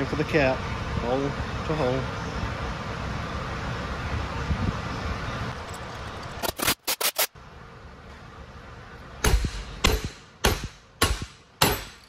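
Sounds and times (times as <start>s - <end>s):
sharp knocks: 9.2s - 12.0s.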